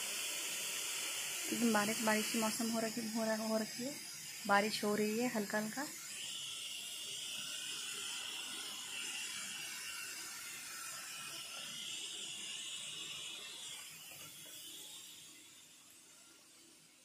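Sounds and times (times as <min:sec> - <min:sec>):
drizzle hiss: 0:00.0 - 0:16.3
high even buzz: 0:01.4 - 0:06.2.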